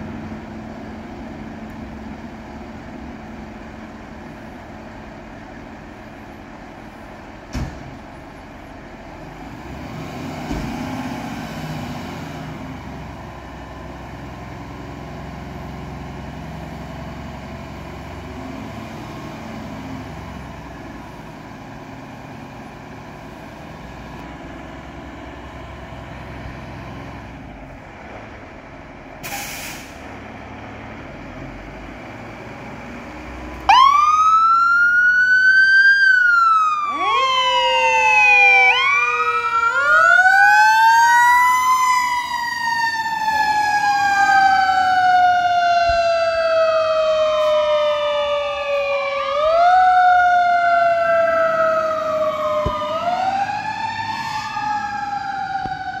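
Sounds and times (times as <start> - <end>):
fire engine siren wailing: 0.0 - 56.0
second siren tone: 42.0 - 56.0.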